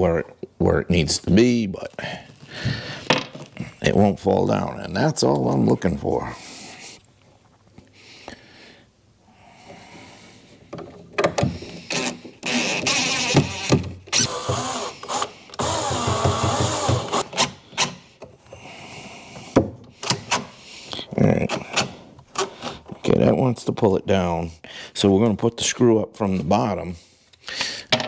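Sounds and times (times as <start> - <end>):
tool handling clicks and knocks: 10.6 - 12.5
impact driver driving screws: 11.9 - 18.0.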